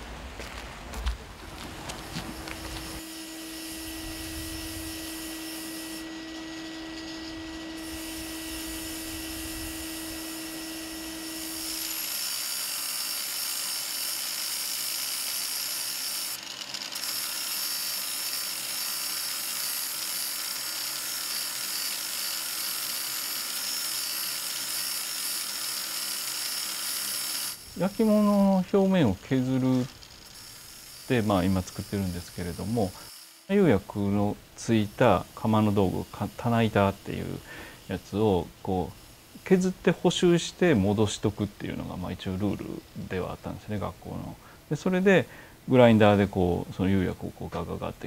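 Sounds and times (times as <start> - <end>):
electric grinder humming: 2.0 - 39.8
grinder grinding ceramic glaze: 2.0 - 44.9.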